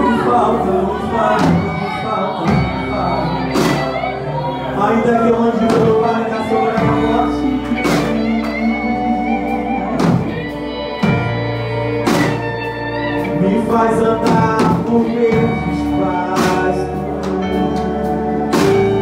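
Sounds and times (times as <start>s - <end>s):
drum kit: 0.0s - 4.4s, 5.0s - 19.0s
electric guitar: 0.0s - 19.0s
voices singing: 0.0s - 19.0s
drum and cymbal hits: 3.5s - 4.1s, 10.0s - 12.7s, 18.5s - 19.0s.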